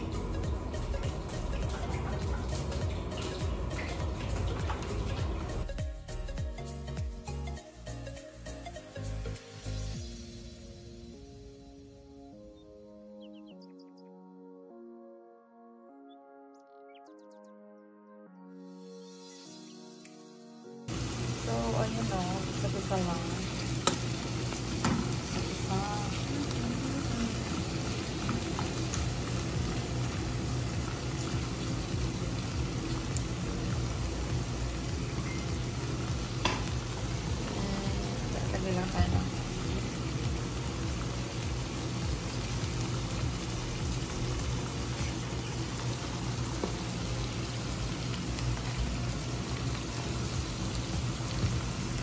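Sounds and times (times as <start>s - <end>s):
food sizzling in a frying pan: 0.0s - 6.3s, 20.9s - 52.0s
oil popping: 23.4s - 52.0s.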